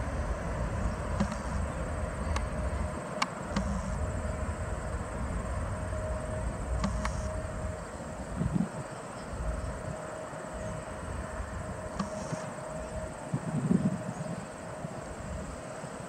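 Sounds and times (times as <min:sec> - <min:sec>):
wind on microphone: 0:00.0 - 0:15.8
distant jet airliner rumble: 0:00.0 - 0:16.0
faint insects buzzing: 0:00.0 - 0:16.0
sharp clicks: 0:01.2 - 0:01.6, 0:03.2 - 0:04.0, 0:06.8 - 0:07.3, 0:12.0 - 0:12.4.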